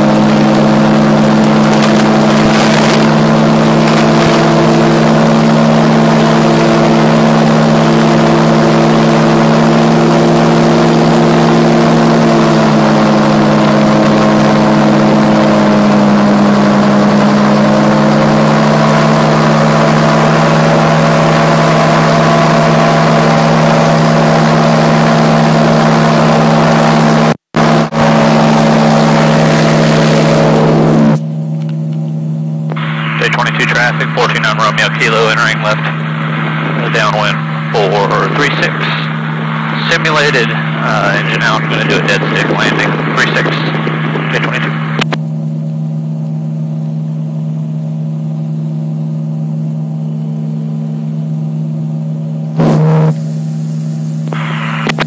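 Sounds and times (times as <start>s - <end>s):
gyroplane engine and propeller: 0.0s - 55.0s.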